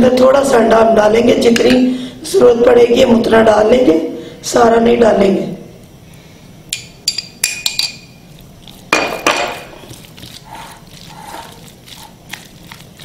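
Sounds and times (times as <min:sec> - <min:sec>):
spatula stirring: 0:07.0 - 0:13.0
glass dishes clinking: 0:09.0 - 0:09.8
spoon scraping glass bowl: 0:09.5 - 0:12.8.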